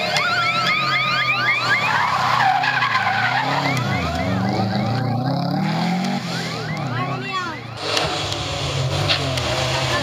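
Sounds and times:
rising warning siren: 0:00.0 - 0:07.8
car engine revving: 0:00.0 - 0:10.0.

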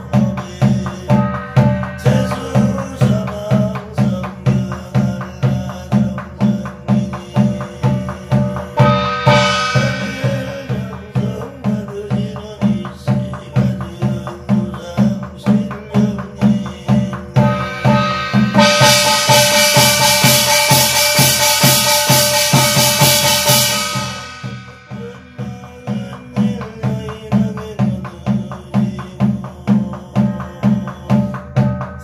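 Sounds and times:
person reading a chant: 0:00.0 - 0:20.1
barrel drum beaten with stick: 0:00.0 - 0:32.0
brass gong ringing: 0:01.2 - 0:03.6, 0:08.8 - 0:11.4, 0:17.4 - 0:25.0.

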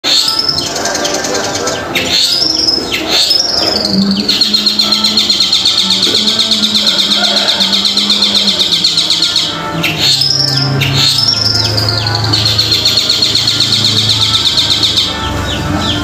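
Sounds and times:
bird chattering and whistling: 0:00.0 - 0:16.0.

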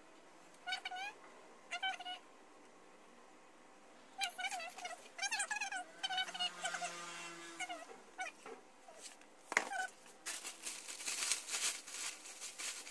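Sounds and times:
plastic packaging rustling: 0:09.0 - 0:12.9.

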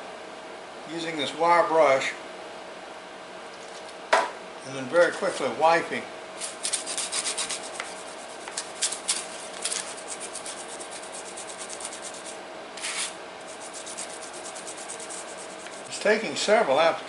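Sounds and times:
wire brush scrubbing metal blade: 0:06.4 - 0:16.0.

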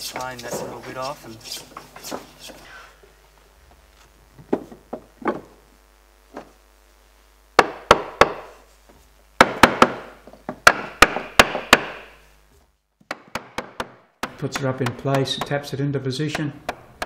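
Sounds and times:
hammer tapping wood: 0:09.4 - 0:12.1, 0:13.0 - 0:17.0.

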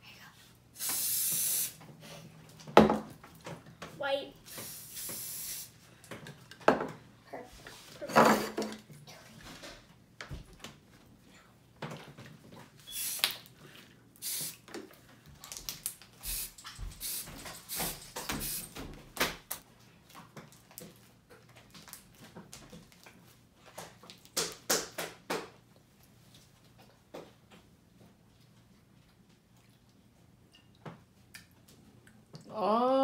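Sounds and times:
spray paint hissing: 0:00.8 - 0:01.8, 0:04.5 - 0:05.8, 0:12.9 - 0:13.4, 0:14.2 - 0:14.6, 0:16.2 - 0:18.8.

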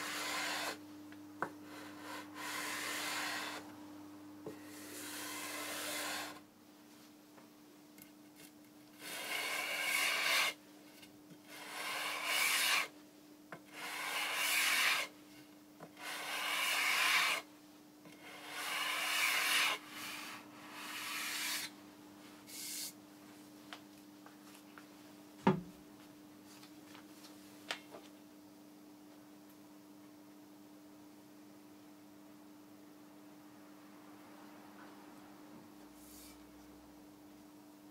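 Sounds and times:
sanding block scratching wood: 0:00.0 - 0:00.8, 0:01.8 - 0:03.6, 0:04.6 - 0:06.4, 0:09.0 - 0:10.6, 0:11.5 - 0:12.9, 0:13.7 - 0:15.1, 0:16.0 - 0:17.4, 0:18.2 - 0:21.7.

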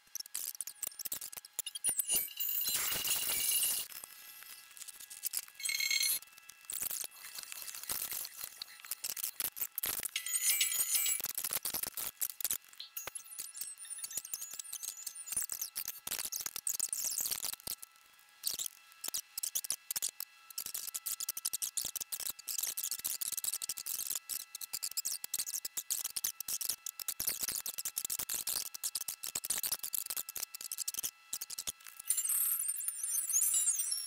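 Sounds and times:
steady high tones: 0:01.8 - 0:03.9, 0:10.2 - 0:11.2.

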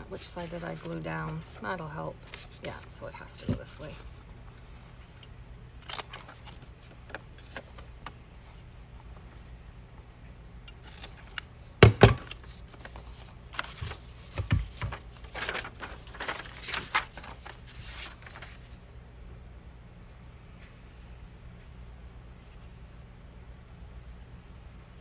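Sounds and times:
paper rustling: 0:00.0 - 0:05.1, 0:05.8 - 0:09.6, 0:10.8 - 0:18.9.

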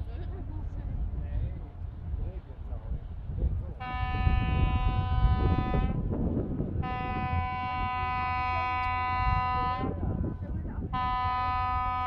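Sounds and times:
ship horn blasts: 0:03.8 - 0:12.0.

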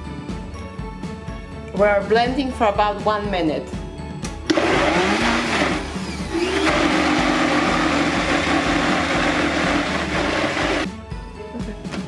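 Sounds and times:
blender motor running: 0:04.5 - 0:10.9.

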